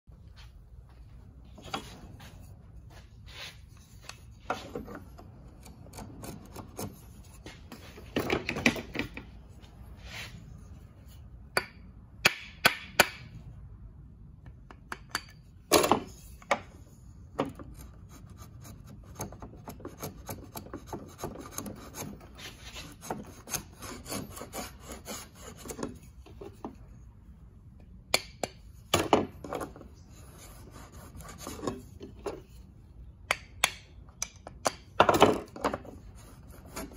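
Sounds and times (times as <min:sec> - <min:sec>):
hand plane rasping on wood: 0:18.5 - 0:26.0.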